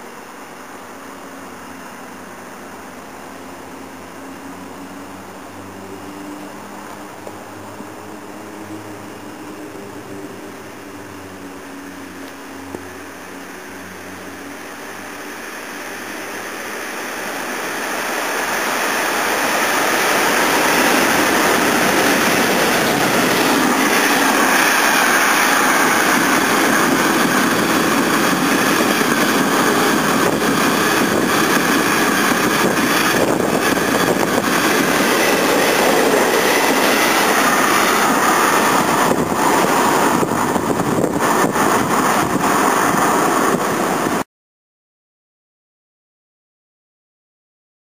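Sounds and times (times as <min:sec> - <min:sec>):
freight train passing: 0:00.0 - 0:44.2
train clacks: 0:13.7 - 0:44.2.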